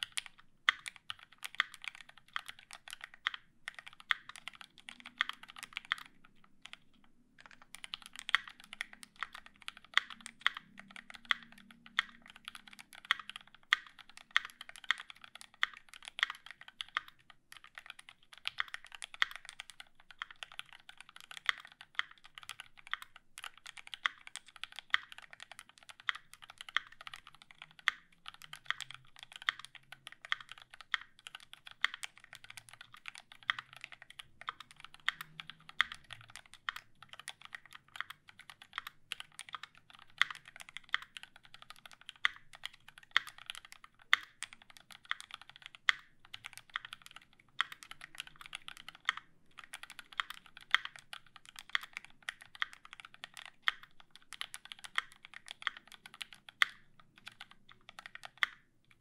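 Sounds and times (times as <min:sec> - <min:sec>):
fast mechanical keyboard typing: 0:00.0 - 0:59.0.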